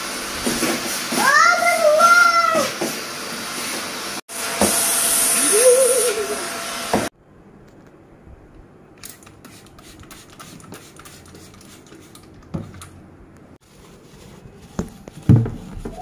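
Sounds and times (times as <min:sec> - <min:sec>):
spray bottle squirts: 0:09.0 - 0:12.8
scratchy rubbing on plastic: 0:13.6 - 0:16.0.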